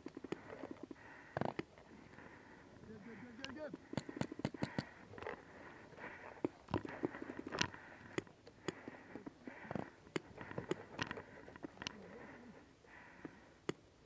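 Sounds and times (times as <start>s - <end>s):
soft hissing breaths: 0.0s - 14.0s
paintball markers popping: 3.4s - 5.0s.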